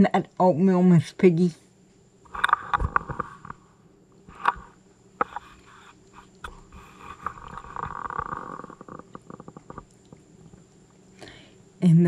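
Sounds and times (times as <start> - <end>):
animals wet chewing and smacking: 4.3 - 11.6.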